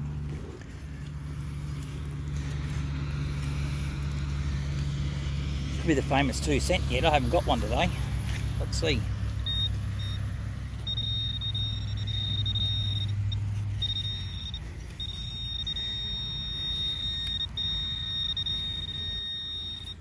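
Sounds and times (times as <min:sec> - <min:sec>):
metal detector alert tone: 0:08.7 - 0:20.0.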